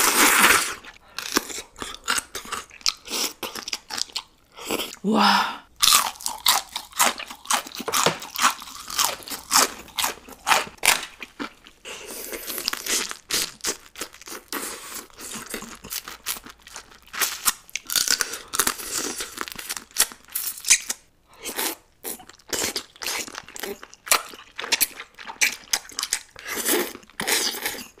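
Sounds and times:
crunchy bites of fried shrimp: 0:05.8 - 0:28.0.

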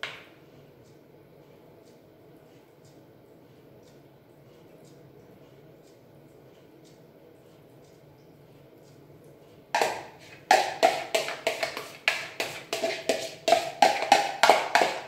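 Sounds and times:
taps on plastic bowl ringing: 0:09.8 - 0:15.0.

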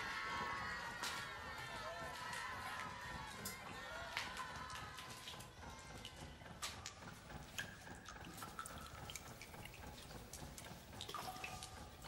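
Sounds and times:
faint water dripping: 0:02.9 - 0:12.0.

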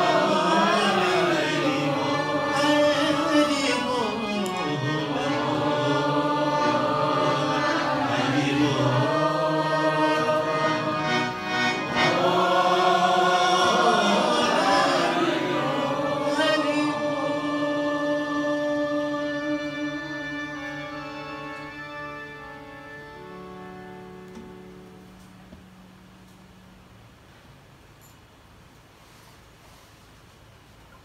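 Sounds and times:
harmonium chords: 0:00.0 - 0:26.0
man singing into a microphone: 0:00.5 - 0:05.3, 0:16.2 - 0:20.5.

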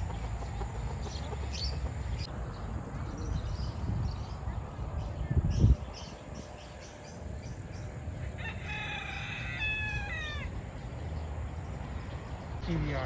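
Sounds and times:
rooster crowing: 0:08.3 - 0:10.6.

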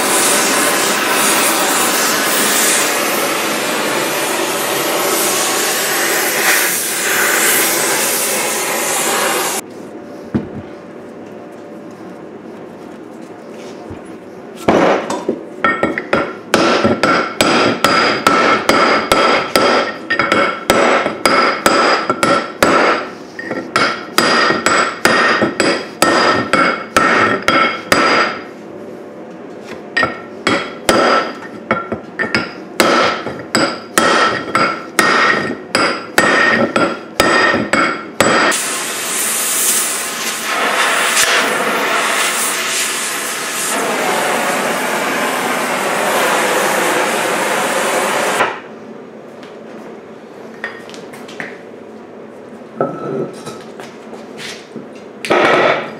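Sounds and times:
cutting torch hissing roar: 0:00.0 - 0:09.6, 0:38.4 - 0:48.6.

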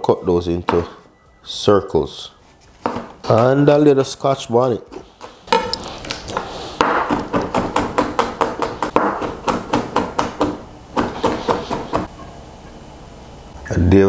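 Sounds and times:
knife chopping on cutting board: 0:06.8 - 0:12.1.

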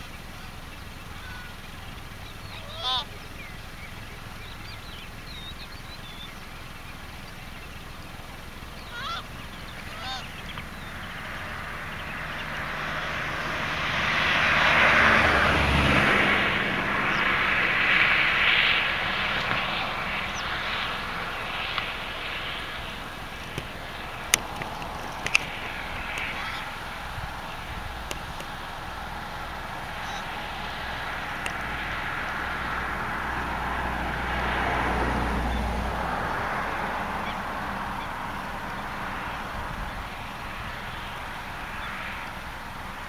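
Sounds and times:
aircraft engine passing over: 0:00.0 - 0:43.0
short bird calls: 0:00.1 - 0:07.7, 0:08.6 - 0:12.6, 0:19.3 - 0:28.7, 0:29.8 - 0:30.6.

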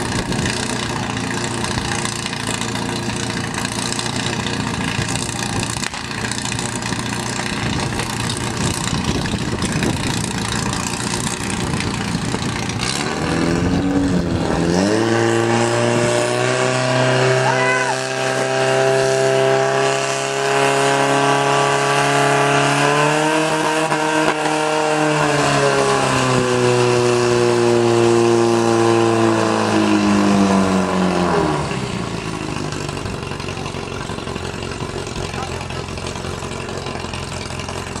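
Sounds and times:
pump engine running hard: 0:00.0 - 0:38.0.

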